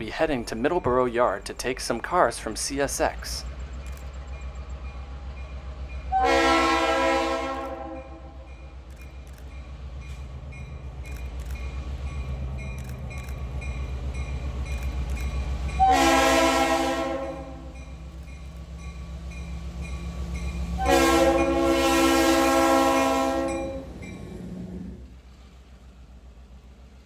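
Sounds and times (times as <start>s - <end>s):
diesel locomotive engine rumble: 0.0s - 27.0s
train air horn blasts: 6.1s - 8.4s, 15.8s - 17.8s, 20.8s - 24.0s.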